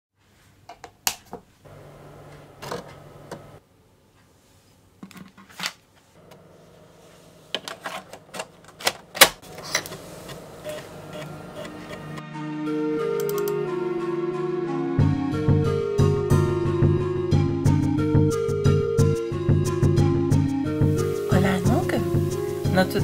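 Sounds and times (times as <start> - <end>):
drive motor humming: 9.5 - 12.2.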